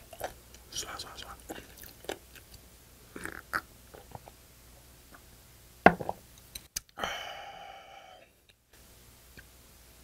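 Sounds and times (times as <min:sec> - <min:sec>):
gulping mouth sounds: 0:03.1 - 0:04.3.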